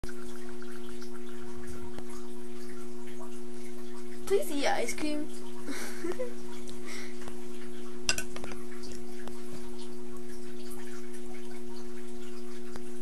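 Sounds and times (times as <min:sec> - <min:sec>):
low two-tone hum: 0:00.0 - 0:13.0
glass cup clinking: 0:08.1 - 0:08.5.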